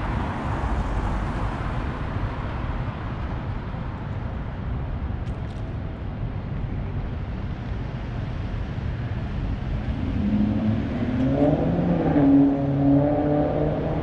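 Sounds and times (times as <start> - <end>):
street traffic rumble: 0.0 - 14.0
vehicle engine accelerating close by: 9.6 - 14.0.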